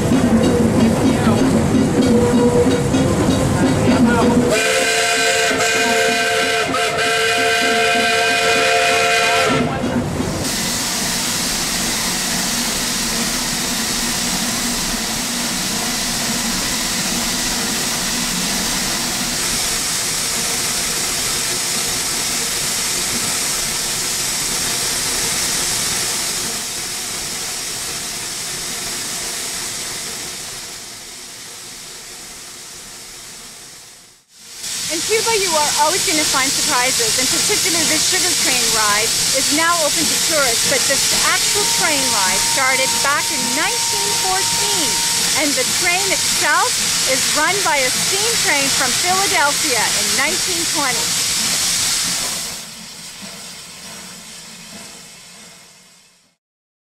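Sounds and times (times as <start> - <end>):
escaping steam hiss: 3.7 - 56.3
steam locomotive whistle: 4.5 - 9.8, 34.9 - 51.2.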